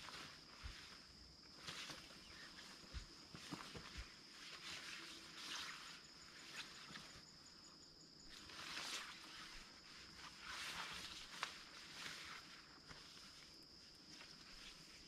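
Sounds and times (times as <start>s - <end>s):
high insect buzz: 0.0s - 15.0s
tarpaulin rustling: 8.3s - 15.0s.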